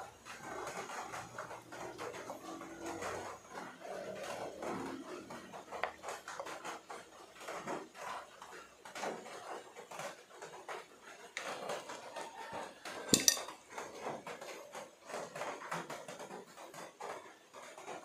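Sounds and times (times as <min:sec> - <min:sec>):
scrapes and taps on glass bowl: 0:13.0 - 0:13.6.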